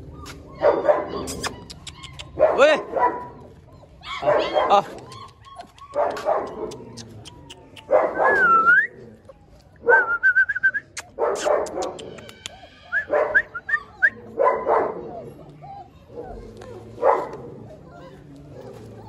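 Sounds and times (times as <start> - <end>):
dogs barking: 0.0 - 8.7, 11.0 - 12.2, 12.9 - 19.0
dogs whining and yelping: 0.0 - 19.0.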